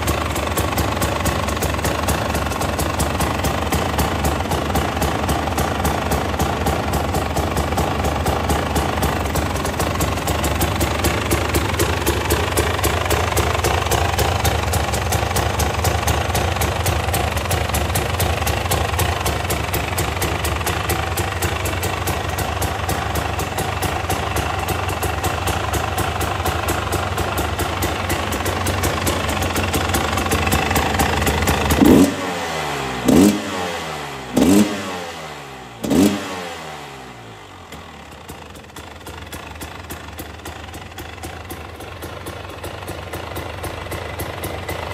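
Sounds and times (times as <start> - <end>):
two-stroke engine idling: 0.0 - 44.9
engine revving: 31.4 - 37.5.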